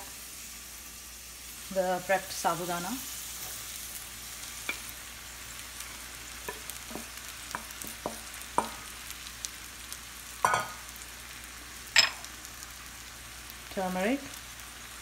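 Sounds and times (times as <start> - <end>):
potatoes sizzling in a pan: 0.0 - 15.0.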